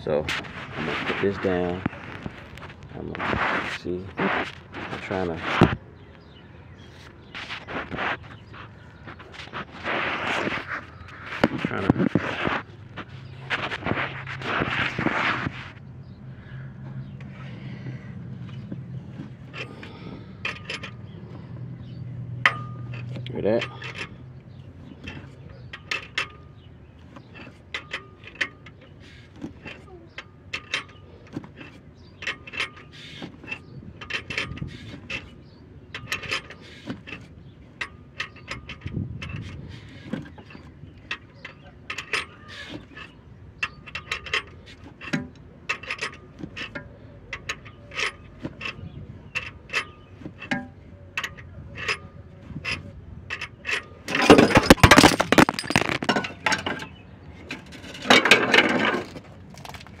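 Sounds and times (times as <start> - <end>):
phone handling rustle: 0.2 - 5.8
sharp metallic clicks and pops: 40.3 - 60.0.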